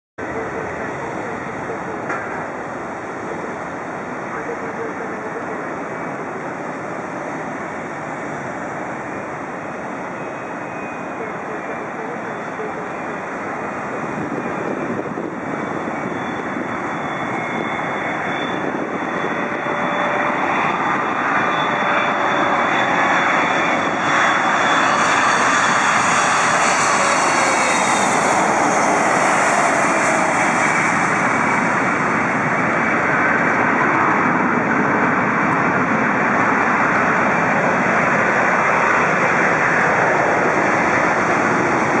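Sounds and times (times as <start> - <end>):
airliner landing engine rush: 0.2 - 42.0
jet engines whining: 0.2 - 42.0.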